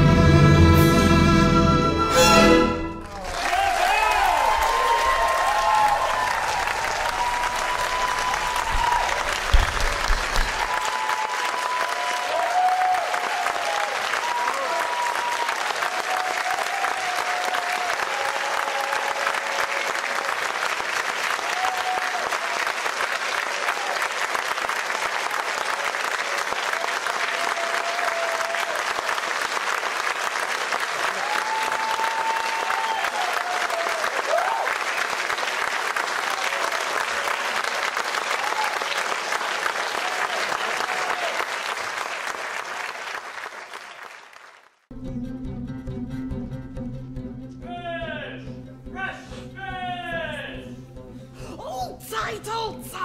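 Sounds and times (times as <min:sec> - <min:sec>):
audience applauding: 0:02.8 - 0:44.9.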